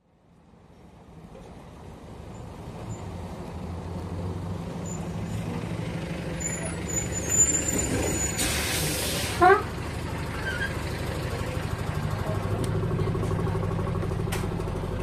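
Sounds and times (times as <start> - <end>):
bus engine hum: 0.1 - 15.0
high squeal: 6.4 - 9.3
short air hiss: 8.4 - 9.4.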